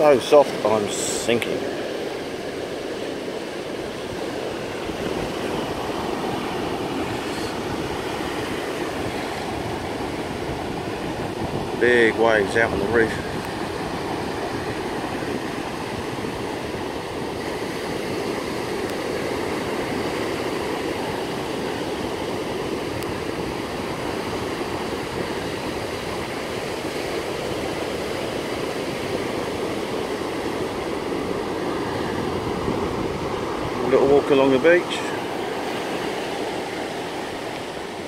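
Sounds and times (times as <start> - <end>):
surf breaking on beach: 0.0 - 38.0.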